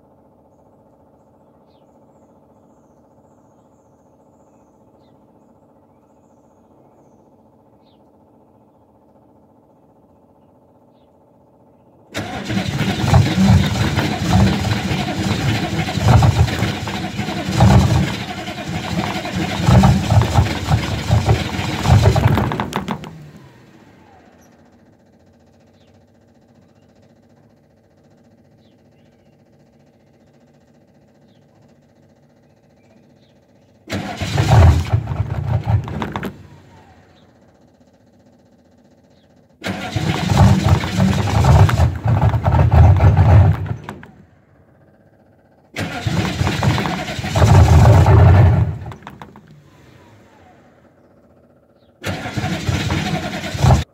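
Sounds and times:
diesel engine starter cranking: 12.1s - 24.8s, 33.9s - 37.8s, 39.6s - 44.6s, 45.7s - 51.4s, 52.0s - 53.9s.

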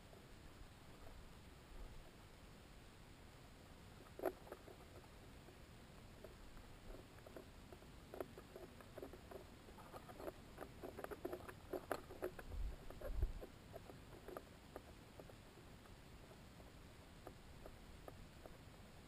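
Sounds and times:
soft clicks and creaks: 4.0s - 16.5s, 17.1s - 19.0s.

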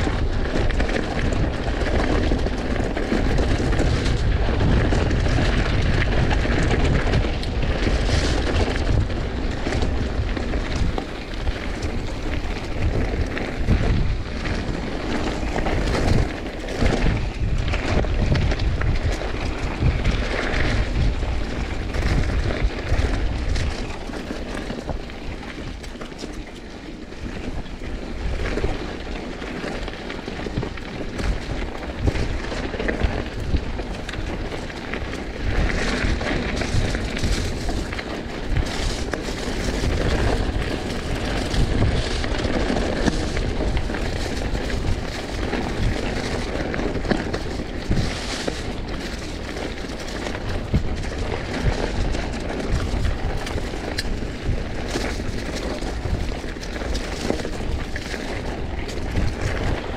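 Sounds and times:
bike tyres rumbling on rough ground: 0.0s - 59.9s
wind buffeting camera microphone: 0.0s - 59.9s
small rattles: 30.4s - 59.9s.

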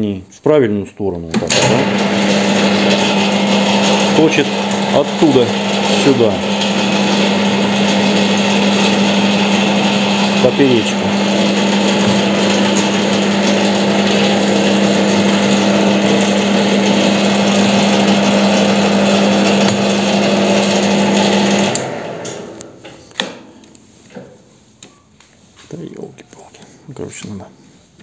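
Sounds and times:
lathe winding down: 1.4s - 22.8s
metal lathe humming: 1.5s - 22.7s
lathe control click: 21.6s - 23.4s.

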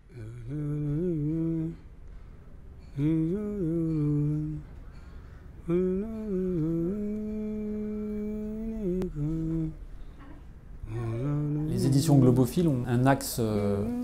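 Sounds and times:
person humming a melody: 0.0s - 1.8s, 2.9s - 4.7s, 5.6s - 9.9s, 10.8s - 11.9s.

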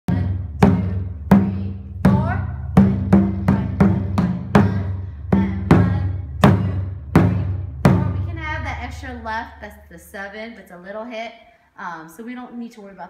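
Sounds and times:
large drum deep hits: 0.1s - 9.3s.

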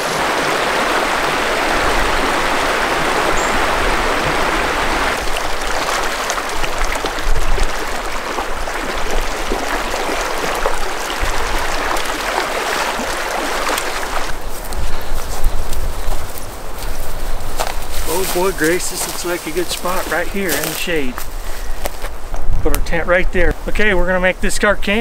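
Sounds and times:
splashes of wading: 0.0s - 16.4s
stream running over rocks: 0.0s - 22.2s.

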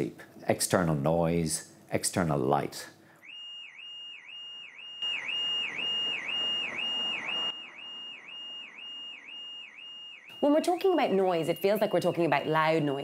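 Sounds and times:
car alarm whooping: 3.2s - 13.0s.

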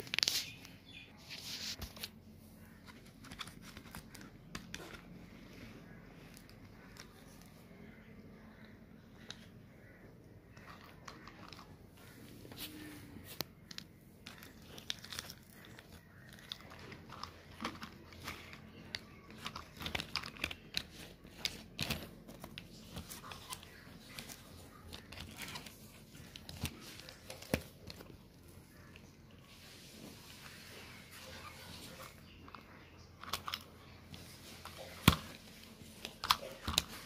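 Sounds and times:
plastic toys clicking and clacking: 10.5s - 12.0s, 13.4s - 28.4s, 32.0s - 37.0s.

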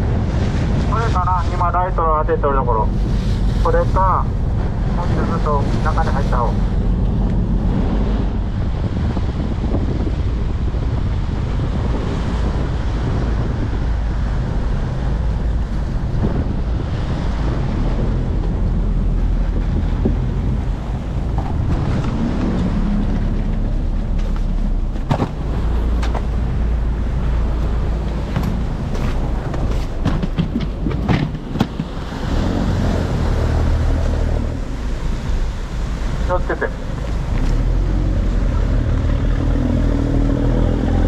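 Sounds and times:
boat engine running: 0.0s - 41.0s
sea wash around hull: 0.0s - 41.0s
wind buffeting microphone: 0.0s - 41.0s
sharp knocks: 29.5s - 32.0s.

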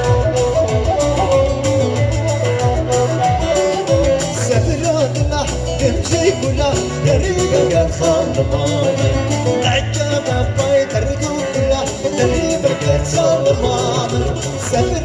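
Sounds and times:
loud dance music: 5.4s - 15.0s.

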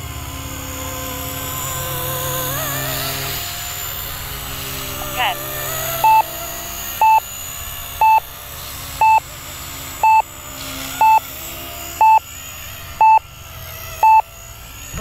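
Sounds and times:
short mid-pitched beeps: 6.0s - 6.3s, 7.0s - 7.2s, 8.0s - 8.2s, 9.0s - 9.2s, 10.0s - 10.3s, 11.0s - 11.2s, 12.0s - 12.3s, 13.0s - 13.2s, 14.0s - 14.2s.

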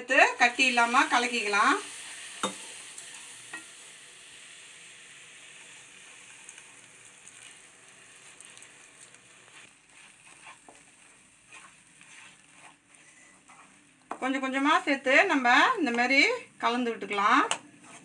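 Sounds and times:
hot syrup hissing in pan: 0.1s - 14.1s
wooden spatula scraping and tapping: 9.1s - 14.3s, 17.4s - 18.0s.

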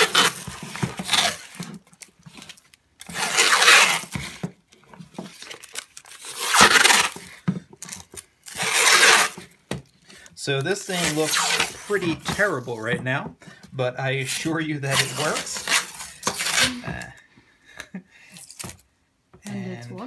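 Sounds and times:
masking tape ripping off roll: 0.0s - 4.4s, 5.3s - 9.5s, 10.8s - 12.6s, 14.2s - 17.1s.

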